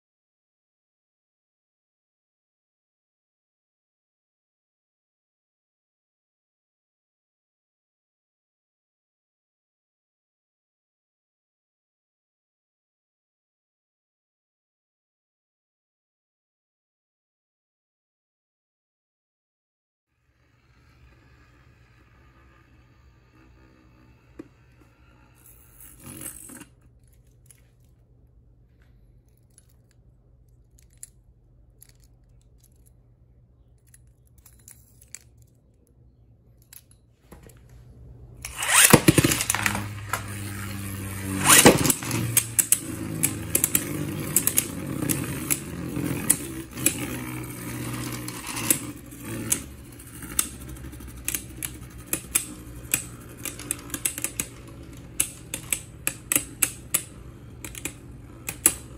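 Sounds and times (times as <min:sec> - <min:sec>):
spinning tops whirring and rattling: 0:20.2 - 0:27.8, 0:38.4 - 0:58.9.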